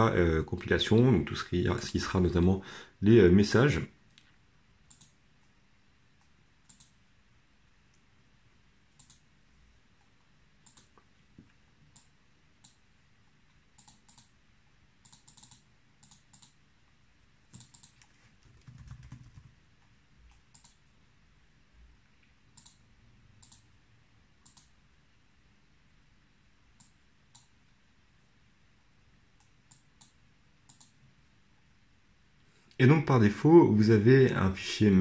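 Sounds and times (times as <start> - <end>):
low steady hum: 0.0 - 35.0
computer mouse clicks: 4.1 - 5.6, 6.2 - 7.0, 8.9 - 9.3, 10.0 - 12.9, 13.5 - 14.4, 15.0 - 16.6, 17.5 - 20.8, 22.2 - 23.7, 24.4 - 24.8, 26.7 - 27.6, 29.4 - 31.0.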